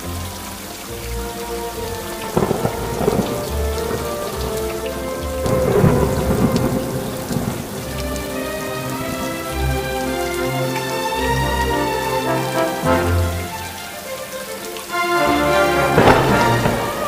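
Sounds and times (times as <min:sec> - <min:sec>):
soft background music: 0:00.0 - 0:17.0
steady rain: 0:00.0 - 0:17.0
thunder clap and rumble: 0:02.2 - 0:09.2, 0:15.7 - 0:17.0.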